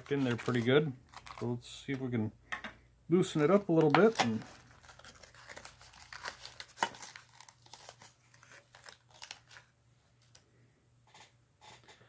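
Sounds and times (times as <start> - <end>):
dry tobacco crinkling and crackling: 0.0 - 2.2, 3.2 - 10.4.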